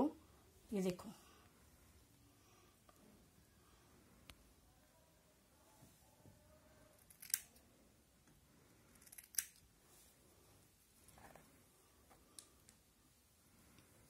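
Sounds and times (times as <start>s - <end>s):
scissors snipping hair: 7.0s - 7.6s.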